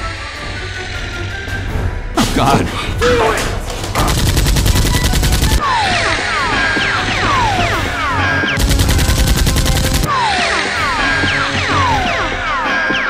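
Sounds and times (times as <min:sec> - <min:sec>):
action background music: 0:00.0 - 0:13.0
automatic gunfire sound effects: 0:04.0 - 0:05.6, 0:08.6 - 0:10.1.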